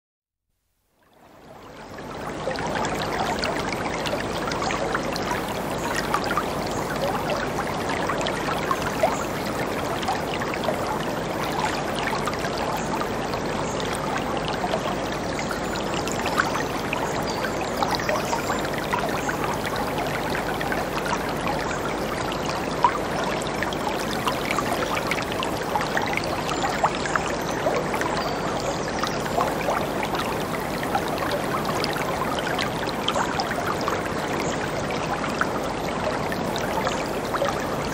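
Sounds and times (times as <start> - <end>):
small water splashes: 1.2 - 37.9.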